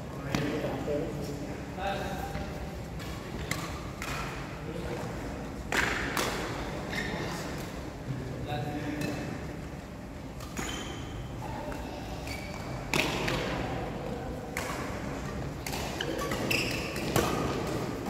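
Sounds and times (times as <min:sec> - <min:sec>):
racket striking shuttlecock: 0:05.7 - 0:06.6, 0:14.5 - 0:17.8.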